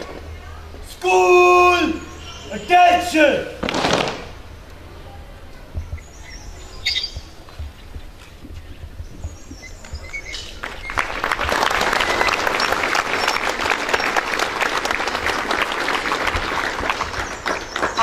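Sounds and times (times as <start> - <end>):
crowd clapping: 9.8 - 18.0.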